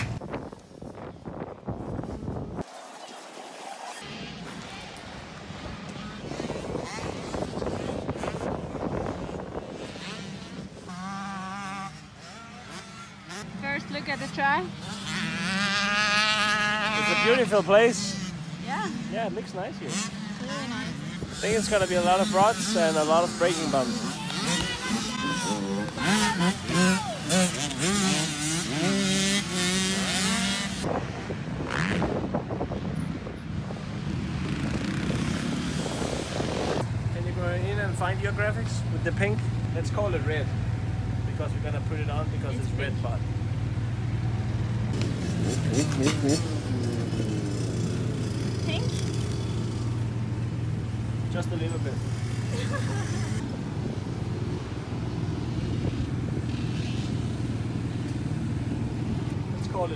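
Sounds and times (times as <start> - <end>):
wind buffeting microphone: 0.0 - 2.6, 5.4 - 10.9, 30.8 - 37.3
dirt bike engines revving: 3.5 - 59.9.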